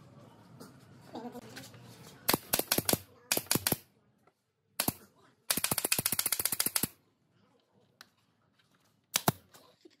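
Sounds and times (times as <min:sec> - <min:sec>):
nail gun firing: 0:02.3 - 0:03.8, 0:04.8 - 0:07.0, 0:09.1 - 0:09.4.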